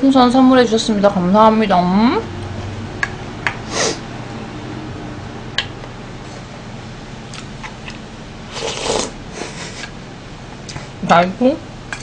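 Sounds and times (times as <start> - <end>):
person slurping soup: 8.5 - 9.9.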